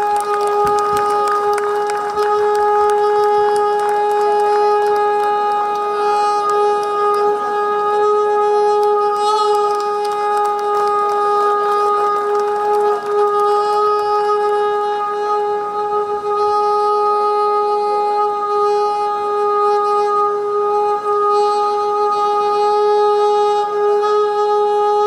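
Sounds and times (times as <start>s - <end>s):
long conch-style call: 0.0s - 25.0s.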